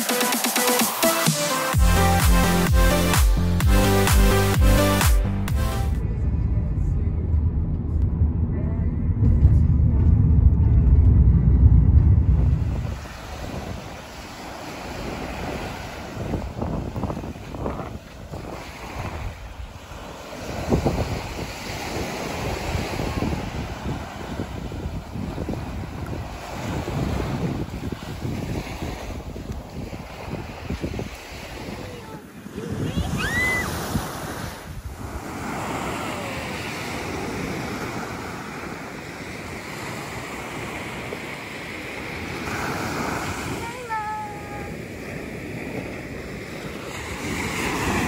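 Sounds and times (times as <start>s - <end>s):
wind buffeting microphone: 7.4s - 48.0s
ocean surf breaking on beach: 12.5s - 48.0s
small waves washing ashore: 12.5s - 48.0s.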